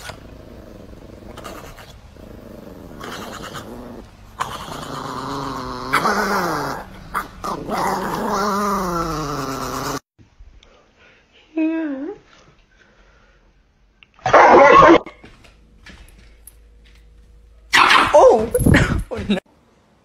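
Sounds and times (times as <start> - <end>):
dog growling: 0.0 - 10.1.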